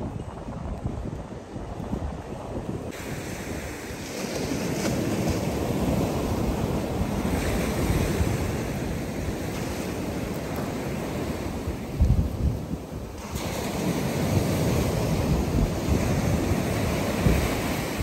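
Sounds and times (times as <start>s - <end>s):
ocean surf washing onto beach: 0.0s - 18.0s
wind buffeting microphone: 0.0s - 18.0s.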